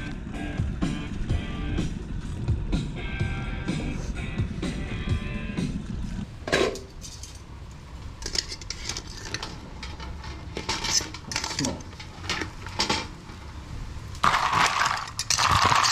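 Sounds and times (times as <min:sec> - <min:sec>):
low steady rumble: 0:00.0 - 0:15.9
metal tongs clinking on pot: 0:08.2 - 0:13.1, 0:14.6 - 0:15.9.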